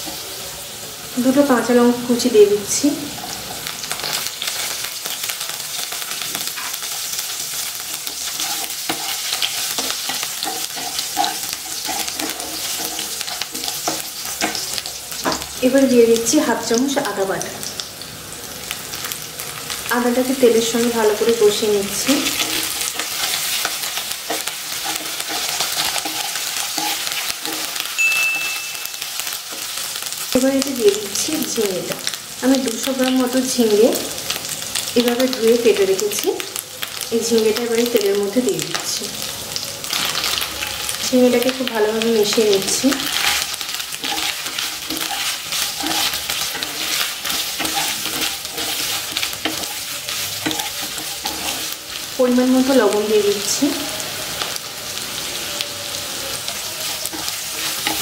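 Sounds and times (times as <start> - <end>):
oil frying hiss: 0.0 - 58.0
spatula scraping pan: 6.3 - 15.5, 22.0 - 28.0, 42.3 - 52.1, 56.4 - 58.0
thin high tone: 28.0 - 29.4.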